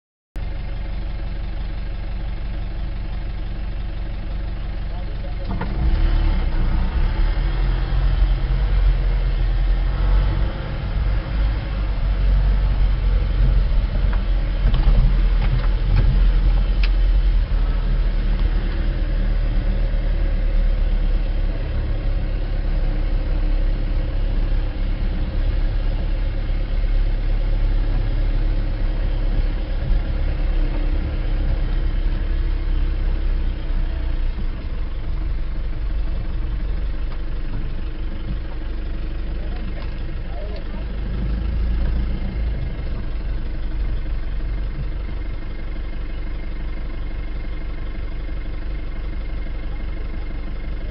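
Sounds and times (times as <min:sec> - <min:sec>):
vehicle engine and tyre rumble: 0:00.4 - 0:50.9.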